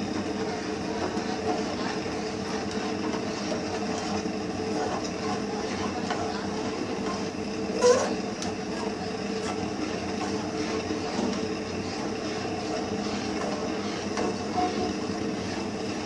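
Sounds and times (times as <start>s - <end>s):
spoon scraping batter in a pan: 0.1s - 16.0s.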